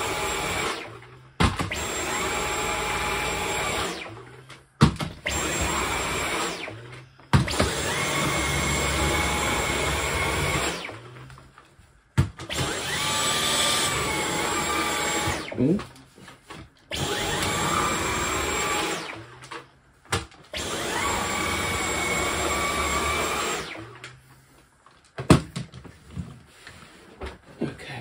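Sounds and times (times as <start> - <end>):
vacuum cleaner motor whine: 0.0 - 4.6, 5.2 - 11.5, 12.4 - 15.8, 16.9 - 19.7, 20.5 - 24.6.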